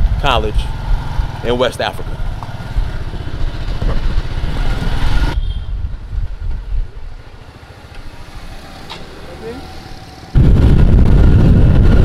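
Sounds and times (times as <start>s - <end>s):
rushing wind noise: 0.0s - 7.2s, 9.9s - 12.0s
low street traffic rumble: 0.0s - 12.0s
motorcycle engine rumbling: 0.0s - 12.0s.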